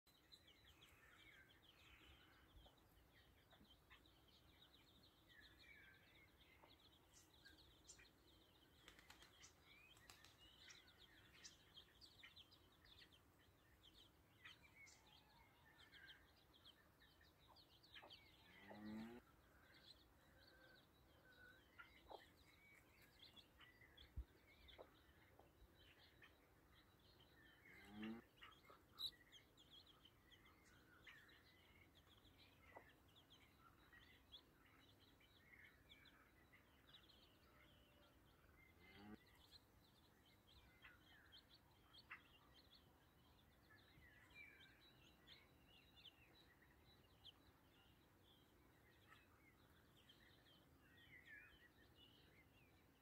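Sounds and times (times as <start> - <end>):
chicks peeping: 6.0 - 8.8, 10.6 - 37.5.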